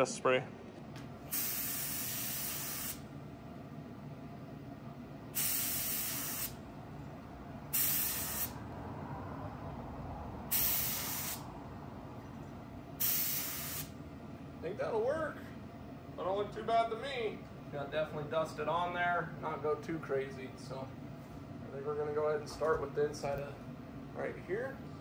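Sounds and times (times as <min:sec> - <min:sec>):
spray gun hissing bursts: 0:01.3 - 0:03.1, 0:05.3 - 0:06.6, 0:07.7 - 0:08.6, 0:10.5 - 0:11.5, 0:13.0 - 0:14.0.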